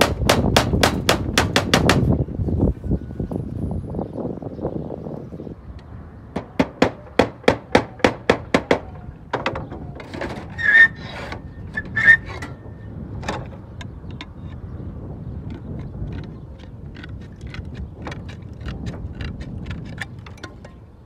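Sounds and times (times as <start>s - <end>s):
hammer blows nailing slate: 0.0s - 2.1s, 6.4s - 9.6s
slate scraping against slate: 10.0s - 12.6s.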